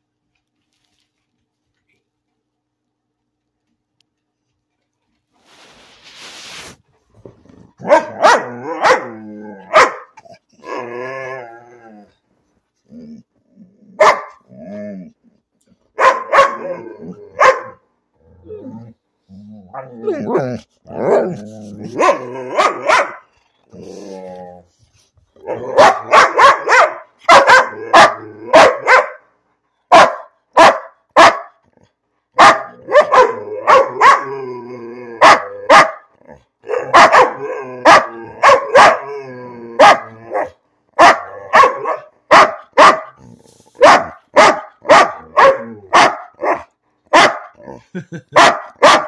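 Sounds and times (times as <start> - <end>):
dog grumbling and moaning: 7.1 - 15.8, 16.6 - 17.4, 18.1 - 26.2, 27.7 - 28.6, 32.7 - 40.6, 43.1 - 43.9, 45.2 - 46.5, 47.6 - 48.2
dog barking: 7.8 - 10.2, 14.0 - 14.4, 16.0 - 17.8, 21.9 - 23.3, 25.5 - 29.3, 29.9 - 31.6, 32.4 - 34.3, 35.2 - 36.1, 36.7 - 39.1, 39.8 - 43.2, 43.8 - 47.6, 48.3 - 49.0.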